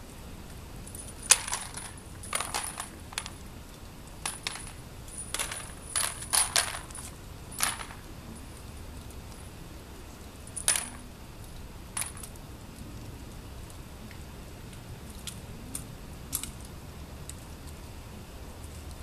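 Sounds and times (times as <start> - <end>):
sharp metallic clinks: 0.8 - 3.4, 4.2 - 9.6, 10.4 - 12.4.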